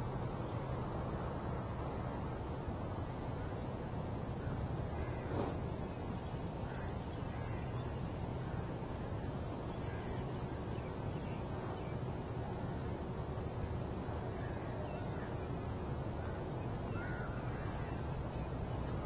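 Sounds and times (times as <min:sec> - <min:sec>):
low outdoor background rumble: 0:00.0 - 0:19.0
faint bird calls: 0:03.4 - 0:12.9, 0:14.0 - 0:19.0.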